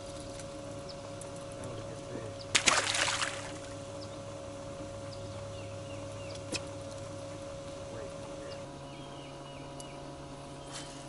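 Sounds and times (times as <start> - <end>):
electric boat motor humming: 0.0 - 11.0
water splash: 2.5 - 3.7.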